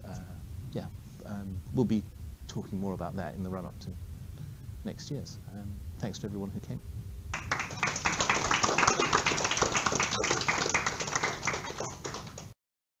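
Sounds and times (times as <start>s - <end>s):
audience applauding: 7.3s - 12.6s.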